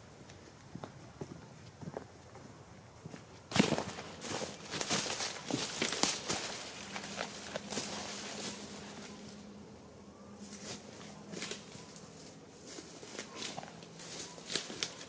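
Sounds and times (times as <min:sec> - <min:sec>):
footsteps crunching dry leaves: 0:03.5 - 0:09.6, 0:10.4 - 0:15.0.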